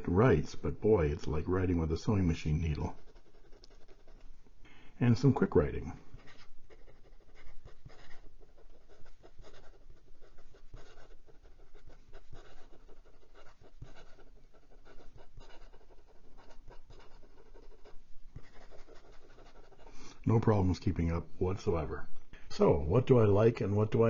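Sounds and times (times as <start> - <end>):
pen nib scratching on paper: 1.2 - 4.3, 5.2 - 20.2.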